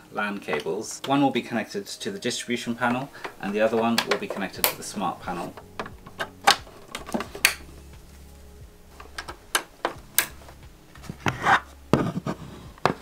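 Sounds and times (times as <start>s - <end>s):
cables rubbing: 0.0s - 13.0s
plastic clicks and knocks: 3.2s - 4.9s.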